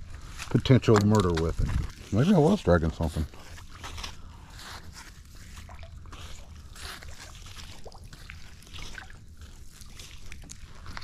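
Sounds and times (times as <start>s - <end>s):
wet rope being hauled: 0.0s - 11.0s
water trickling: 5.3s - 11.0s.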